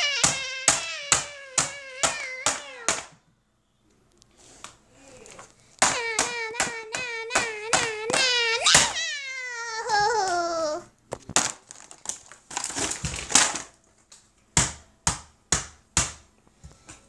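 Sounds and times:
knocks of toys being handled: 0:00.0 - 0:03.3, 0:05.8 - 0:09.1, 0:11.1 - 0:13.7
rustling and crinkling: 0:09.7 - 0:14.4.

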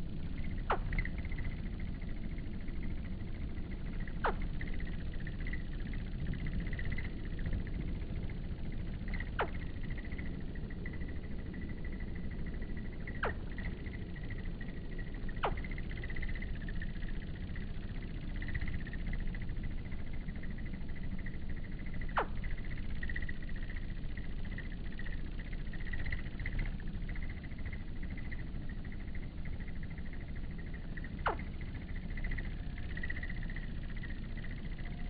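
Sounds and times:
crickets chirring: 0:00.0 - 0:35.0
low steady rumble: 0:00.0 - 0:35.0.

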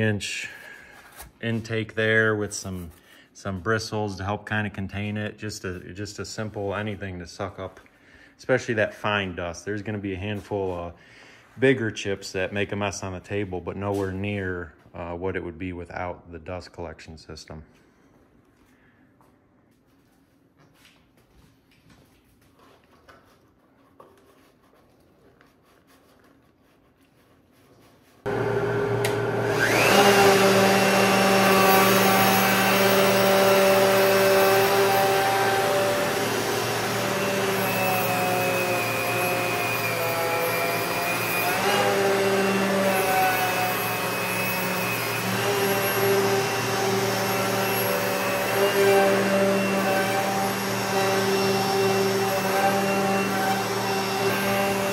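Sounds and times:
dust collector air rush: 0:28.3 - 0:54.9
wood router whining: 0:28.3 - 0:54.9.

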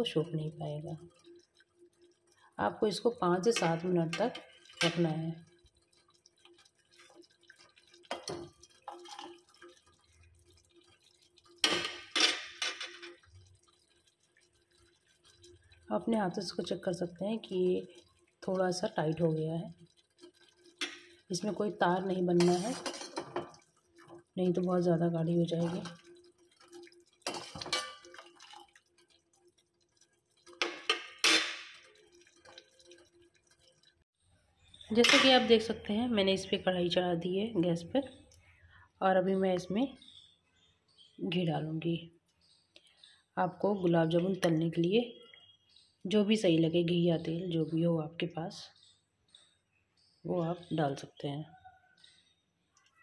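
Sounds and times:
syrup simmering bubbles popping: 0:00.0 - 0:38.6
syrup dripping from ladle: 0:00.2 - 0:34.0.

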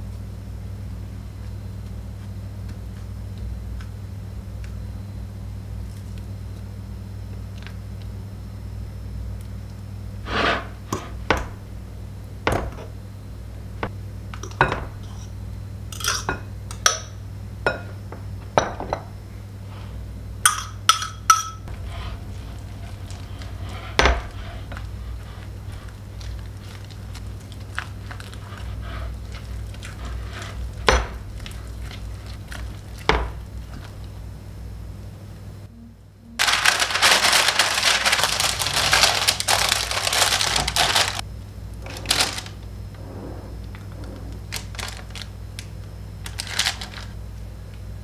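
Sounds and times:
utensils knocking on bowls: 0:20.5 - 0:21.9
loud crunching scraping: 0:36.4 - 0:41.2, 0:41.8 - 0:47.2.

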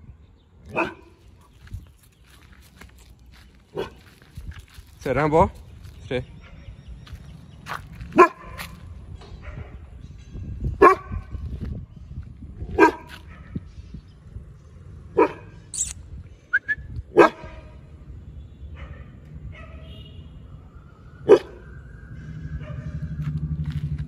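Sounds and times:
dog barking: 0:00.7 - 0:01.2, 0:03.7 - 0:04.0, 0:08.1 - 0:08.8, 0:10.8 - 0:11.2, 0:12.7 - 0:13.6, 0:15.1 - 0:15.5, 0:17.1 - 0:17.8, 0:18.7 - 0:19.9, 0:21.2 - 0:21.6, 0:22.6 - 0:23.0.

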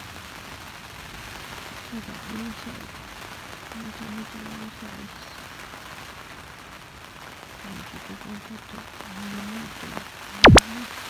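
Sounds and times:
rain on tent canvas: 0:00.0 - 0:11.0.

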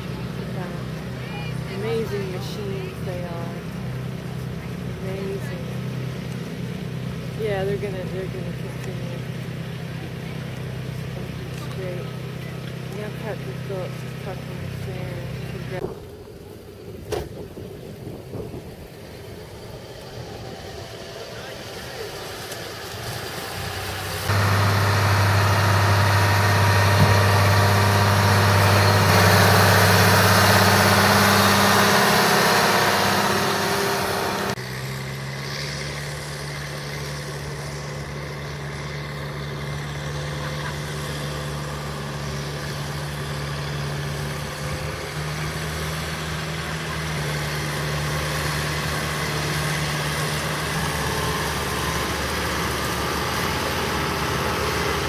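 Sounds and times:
large tractor engine running loud: 0:00.0 - 0:16.6, 0:17.9 - 0:55.0
smaller tractor engine droning: 0:19.3 - 0:55.0.

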